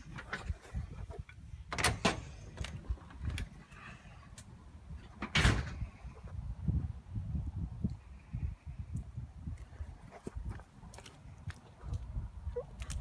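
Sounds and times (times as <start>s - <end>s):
door opening and shutting: 1.7s - 2.7s, 5.2s - 5.9s.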